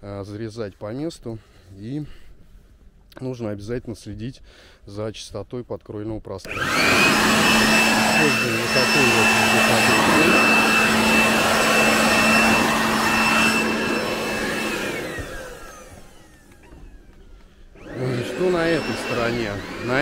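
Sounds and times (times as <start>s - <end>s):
motor winding down: 6.5s - 17.2s, 17.8s - 20.0s
electric leaf blower whining: 6.5s - 20.0s.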